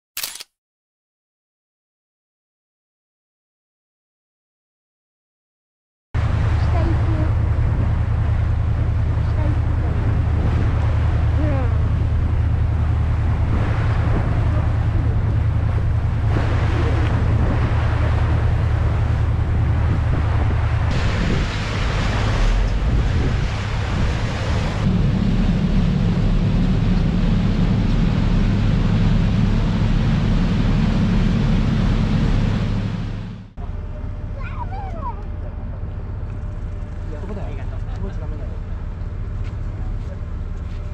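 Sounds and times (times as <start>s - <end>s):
wind buffeting microphone: 6.2s - 33.4s
ship engine droning: 6.2s - 40.9s
water rushing along hull: 6.2s - 40.9s.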